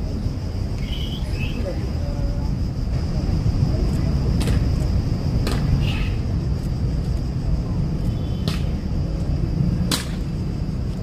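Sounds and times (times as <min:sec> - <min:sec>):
city traffic rumble: 0:00.0 - 0:11.0
wind: 0:00.0 - 0:11.0.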